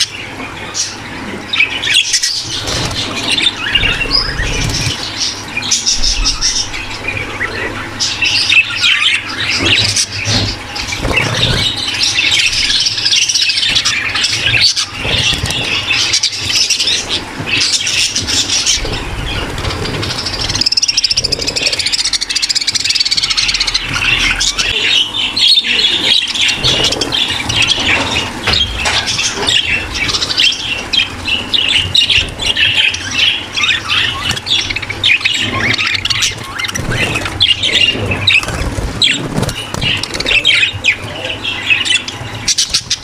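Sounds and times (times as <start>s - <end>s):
flock of budgerigars chattering: 0.0s - 43.0s.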